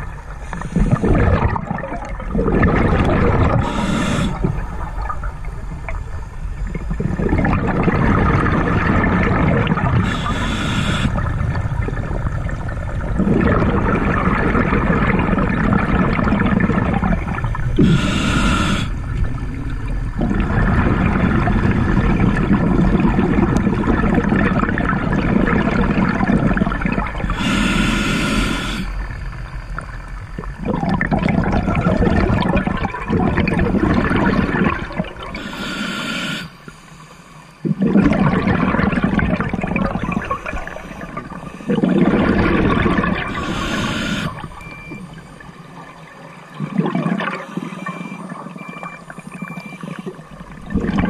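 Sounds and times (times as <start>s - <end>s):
regulator hissing inhalation: 0.4s - 1.2s, 3.5s - 4.5s, 10.0s - 11.3s, 17.8s - 19.0s, 27.3s - 29.0s, 35.4s - 37.4s, 43.2s - 44.5s
bubbling exhalation: 0.6s - 5.2s, 6.8s - 18.9s, 30.4s - 35.8s, 37.6s - 45.0s, 46.5s - 47.6s, 48.8s - 51.0s.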